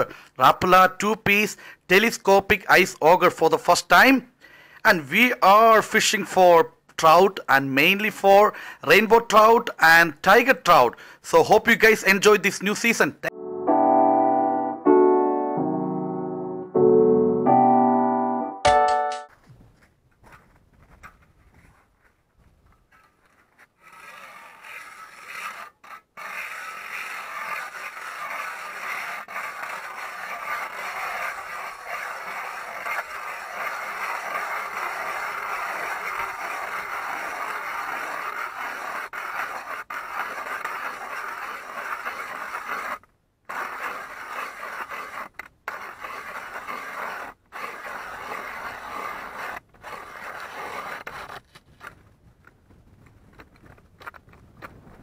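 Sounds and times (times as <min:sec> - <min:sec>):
ice auger grinding into ice: 0:22.9 - 0:51.4.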